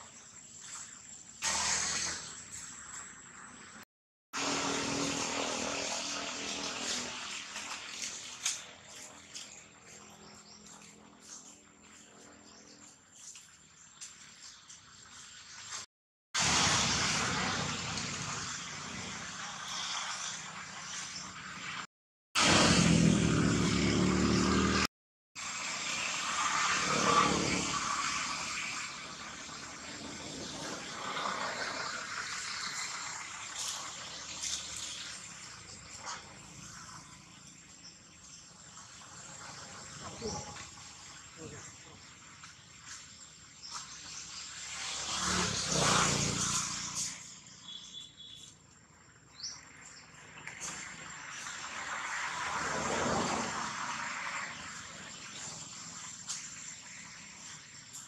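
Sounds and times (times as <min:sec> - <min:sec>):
engine running close by: 0:04.4 - 0:12.4, 0:22.4 - 0:37.8, 0:43.7 - 0:47.8, 0:50.4 - 0:58.0
vehicle passing: 0:22.4 - 0:24.9, 0:44.6 - 0:47.6, 0:50.4 - 0:55.7
birds chirping: 0:47.4 - 0:48.6.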